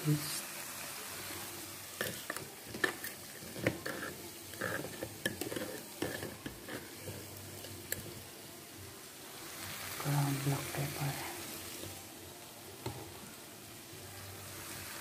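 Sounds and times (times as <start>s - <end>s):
frying pan sizzling: 0.0s - 15.0s
metal spoon scraping plastic jar: 2.8s - 7.3s.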